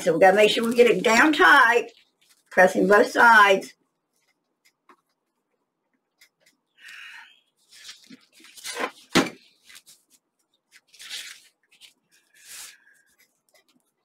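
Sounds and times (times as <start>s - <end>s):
paper rustling: 0.1s - 2.7s, 7.6s - 14.0s.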